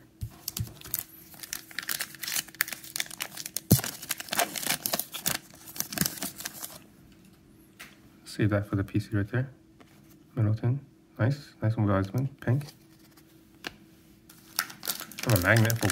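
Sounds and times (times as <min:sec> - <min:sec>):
cellophane wrapper tearing and crinkling: 0:00.3 - 0:06.8, 0:14.3 - 0:15.9.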